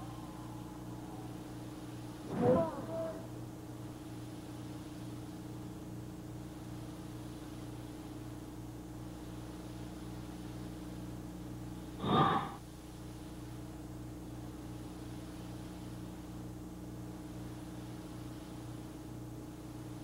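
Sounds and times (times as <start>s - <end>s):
tape hum and hiss: 0.0s - 20.0s
short breathy noise: 12.0s - 12.6s.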